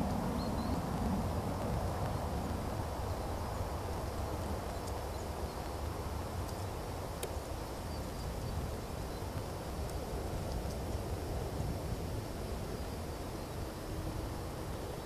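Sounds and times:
faint clicks: 6.4 - 7.4, 9.3 - 11.0.

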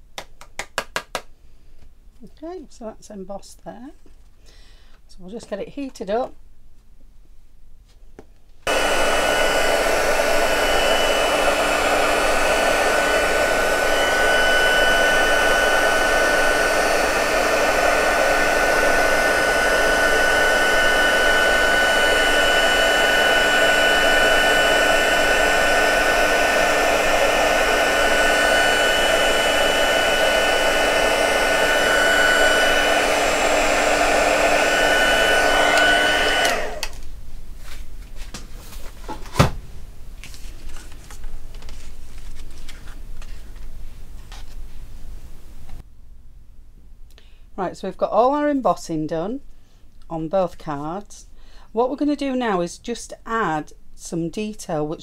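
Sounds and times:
heat gun fan whining: 8.7 - 37.2.

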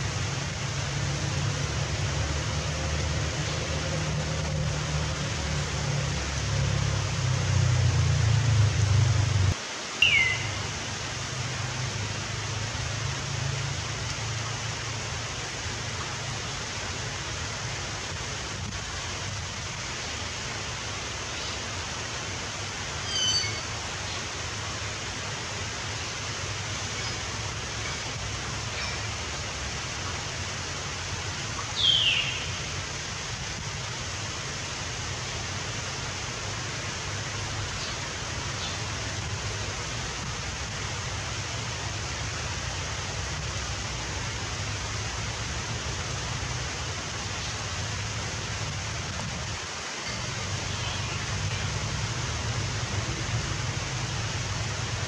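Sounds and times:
outdoor hiss: 0.0 - 55.0
bird chirps: 10.0 - 10.6, 23.0 - 23.7.

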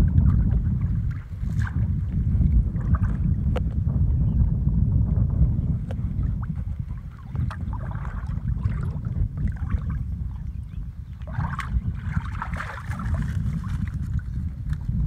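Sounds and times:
wind buffeting microphone: 0.0 - 15.0
reeds and grass rustling: 12.5 - 14.9.

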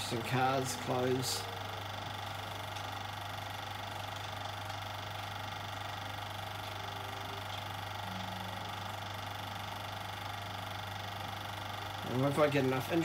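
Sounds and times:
mechanical film chatter: 0.0 - 13.0
projector motor hum: 0.0 - 13.0.

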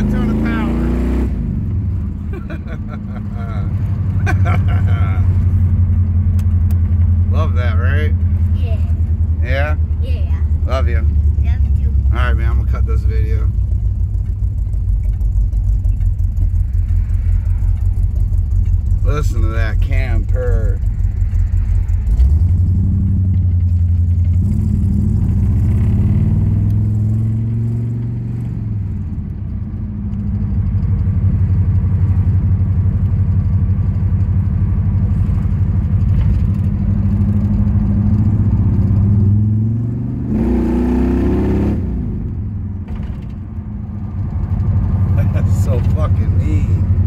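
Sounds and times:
car engine purring: 0.0 - 47.0.

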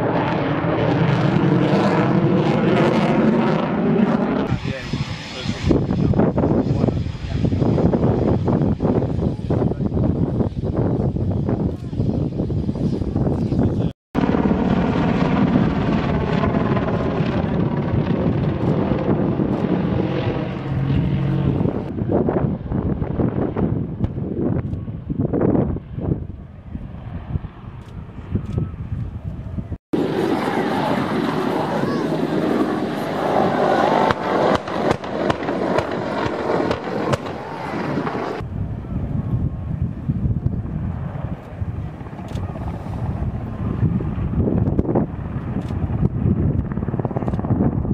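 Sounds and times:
helicopter flying overhead: 0.0 - 47.9
wind buffeting microphone: 0.0 - 47.9
pyrotechnic bangs: 30.0 - 38.4.

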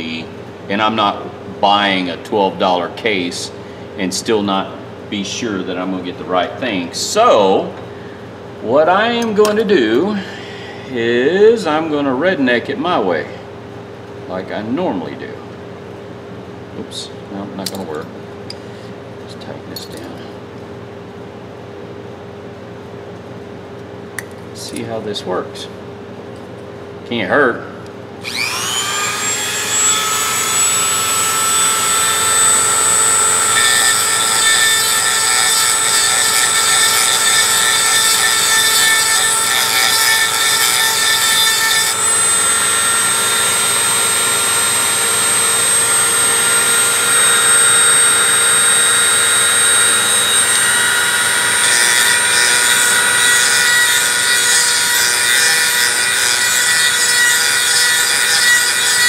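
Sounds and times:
grinding stone grinding steel: 28.2 - 59.0
rotary tool whining: 28.2 - 59.0.

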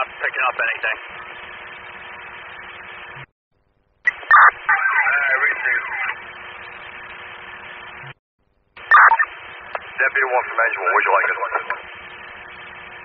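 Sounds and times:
radio transmission hiss: 0.0 - 2.3, 4.1 - 8.2, 8.8 - 13.0
garbled warbling radio burst: 4.1 - 6.2, 8.9 - 9.3.

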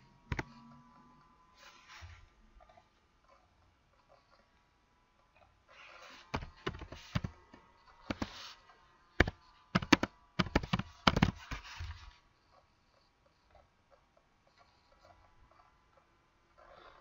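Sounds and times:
keyboard typing: 0.3 - 0.5, 6.3 - 7.4, 8.0 - 8.4, 9.2 - 11.9.

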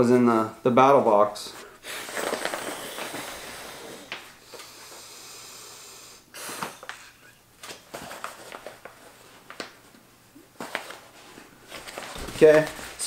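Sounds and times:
sharp intake of breath: 1.6 - 7.2
breath blown into valve: 1.8 - 6.8
clicks and rustles of pad: 2.0 - 3.3, 6.6 - 10.0, 10.6 - 13.0.

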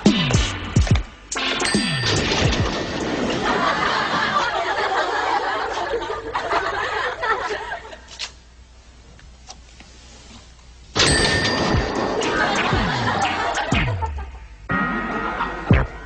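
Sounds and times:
audience laughter: 2.8 - 8.1, 12.0 - 16.0.

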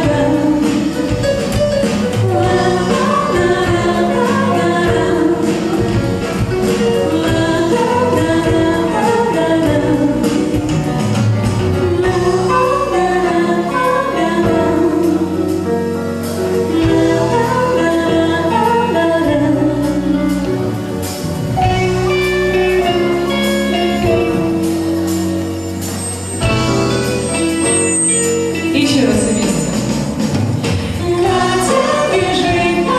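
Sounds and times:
woman singing: 0.0 - 1.5, 2.2 - 10.8, 11.8 - 15.8, 16.6 - 20.5, 30.8 - 32.9
keyboard and band playing: 0.0 - 32.9.

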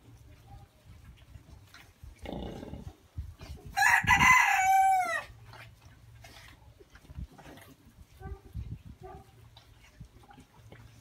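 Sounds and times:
rooster crowing: 3.8 - 5.3.

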